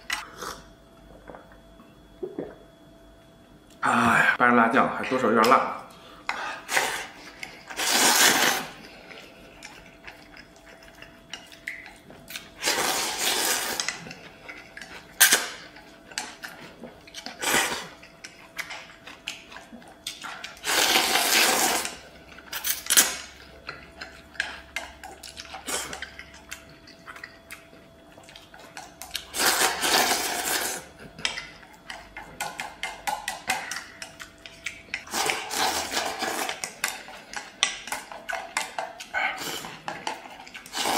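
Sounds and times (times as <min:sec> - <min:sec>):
chewing: 0:06.6 - 0:40.9
person slurping noodles: 0:07.8 - 0:08.8, 0:12.6 - 0:13.8, 0:20.6 - 0:21.9, 0:29.3 - 0:30.9, 0:35.1 - 0:36.5.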